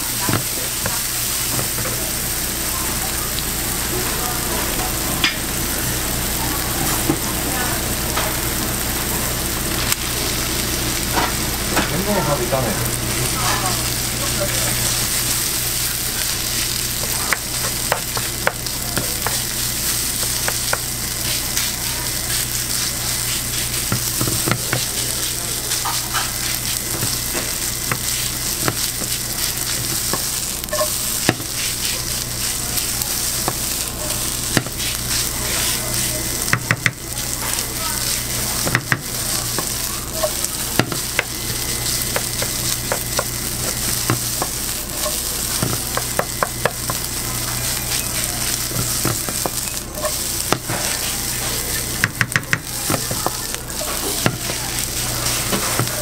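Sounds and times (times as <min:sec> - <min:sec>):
food sizzling in frying pan: 0:00.0 - 0:56.0
spatula scraping and tapping pan: 0:38.6 - 0:56.0.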